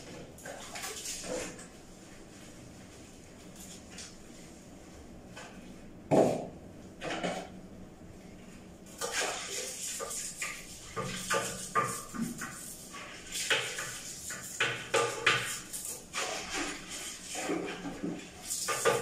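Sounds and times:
toilet brush scrubbing bowl: 0:08.9 - 0:19.0.

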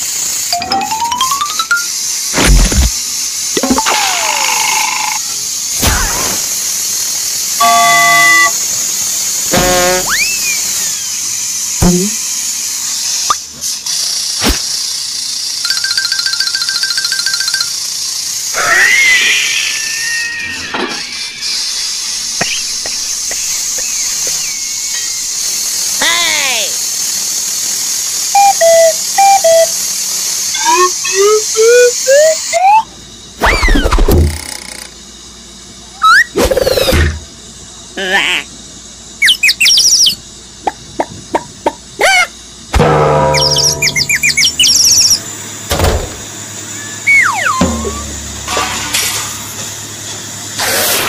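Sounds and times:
loud whistle-like tones: 0:07.6 - 0:08.6, 0:09.6 - 0:11.2, 0:28.3 - 0:29.7, 0:30.5 - 0:33.9, 0:43.3 - 0:45.2, 0:46.8 - 0:48.2
quick rising chirp: 0:43.4 - 0:45.2.

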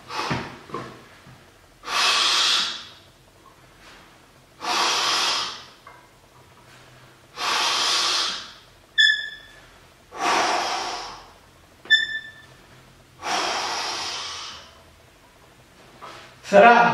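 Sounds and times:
man breathing hard: 0:10.1 - 0:11.4, 0:13.2 - 0:14.8.

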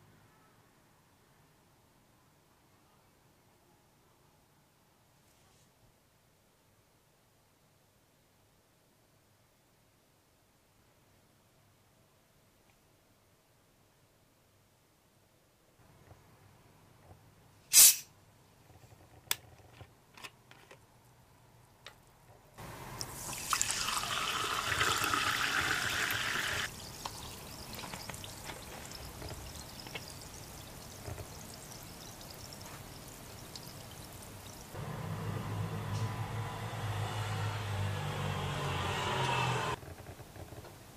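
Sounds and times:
carbonated bottle opening hiss: 0:17.7 - 0:18.1
bubbles fizzing in glass: 0:23.1 - 0:34.8
water pouring into glass: 0:23.1 - 0:34.8.

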